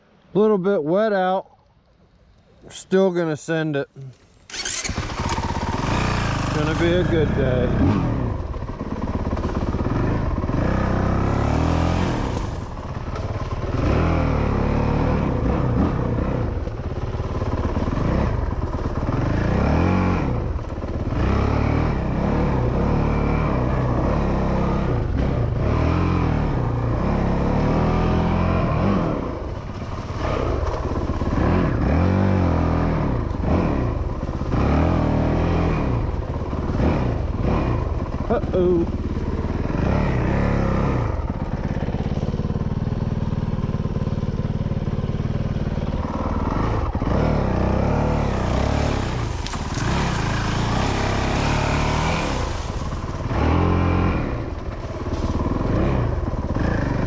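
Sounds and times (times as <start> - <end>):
dirt bike engine revving: 4.5 - 57.0.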